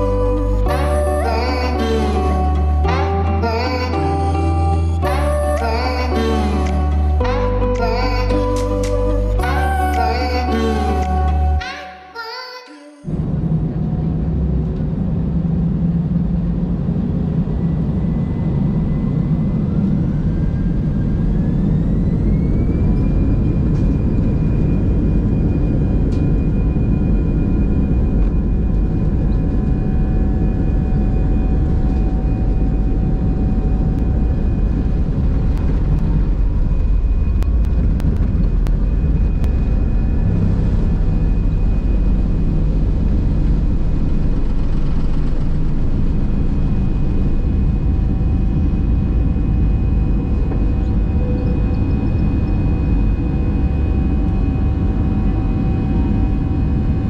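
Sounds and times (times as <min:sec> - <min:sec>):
jet engines spooling up: 0:13.1 - 0:57.0.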